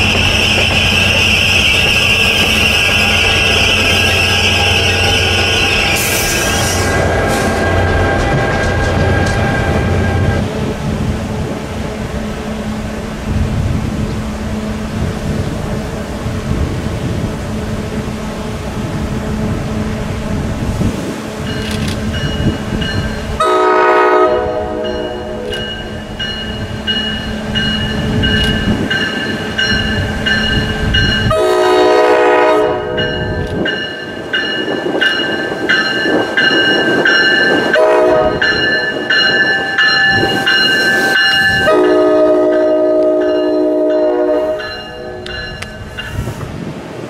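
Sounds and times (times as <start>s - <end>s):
train horn blasts: 0.0s - 10.4s, 23.4s - 25.7s, 31.2s - 33.5s, 37.6s - 45.6s
train rumbling past: 0.0s - 47.0s
crossing bell ringing: 21.4s - 46.4s.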